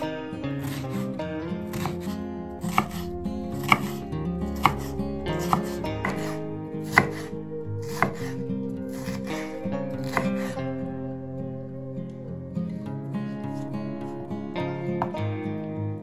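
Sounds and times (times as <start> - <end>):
background music: 0.0 - 16.0
knife chopping on wooden board: 0.6 - 1.0, 1.7 - 10.6.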